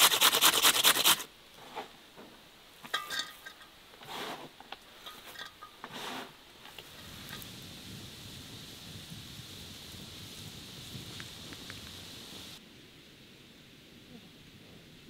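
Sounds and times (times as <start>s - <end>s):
carrot grating on metal grater: 0.0s - 1.2s
rustles and scrapes in basin: 1.6s - 7.5s.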